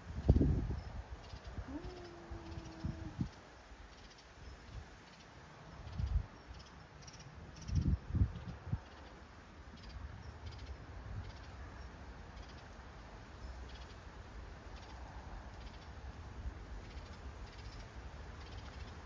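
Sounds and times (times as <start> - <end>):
insects chirping: 3.9 - 7.9.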